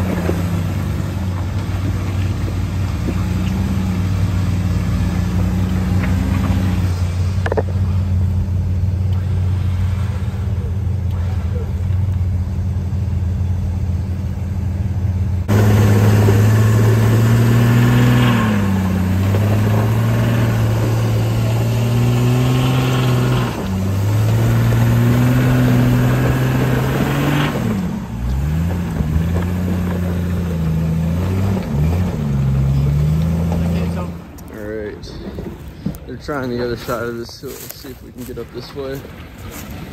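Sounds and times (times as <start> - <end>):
engine revving: 0.0 - 37.7.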